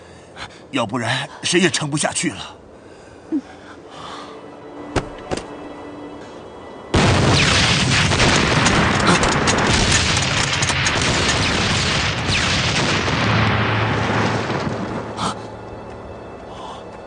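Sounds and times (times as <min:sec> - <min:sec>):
explosion blast: 0:07.0 - 0:15.2.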